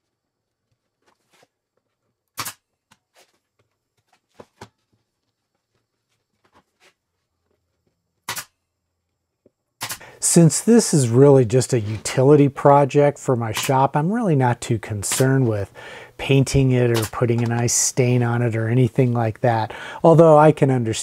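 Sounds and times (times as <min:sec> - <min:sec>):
nail gun firing sharp clack: 0:02.4 - 0:02.6, 0:08.3 - 0:08.5, 0:09.8 - 0:10.0.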